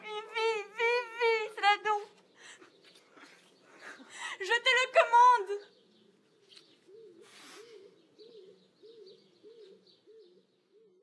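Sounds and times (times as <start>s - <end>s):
dove cooing: 6.8s - 11.0s.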